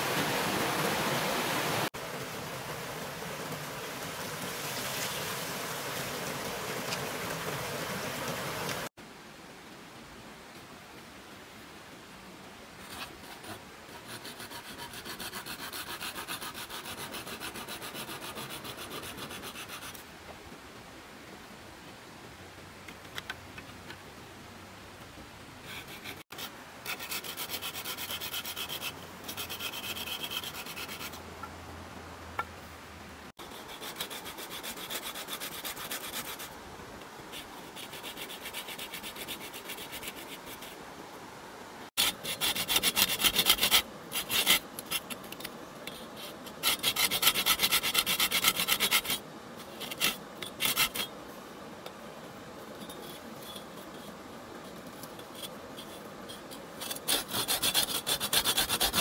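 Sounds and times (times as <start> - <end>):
saw cutting bamboo: 13.3 - 20.0, 25.8 - 31.2, 33.4 - 36.5, 42.0 - 45.2, 46.2 - 51.1, 55.3 - 59.0.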